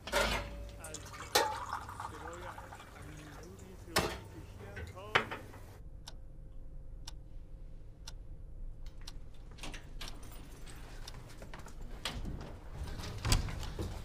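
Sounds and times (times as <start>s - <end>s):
faint steady hum: 0.0s - 14.0s
clock ticking: 3.5s - 7.3s, 8.0s - 9.3s.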